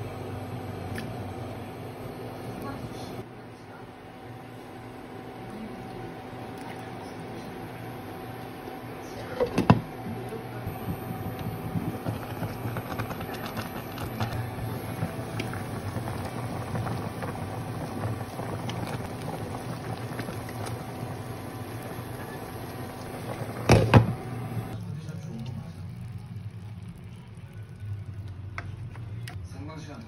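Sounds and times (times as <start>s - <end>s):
water boiling in a pot: 4.0s - 29.0s
low hum: 10.0s - 24.9s.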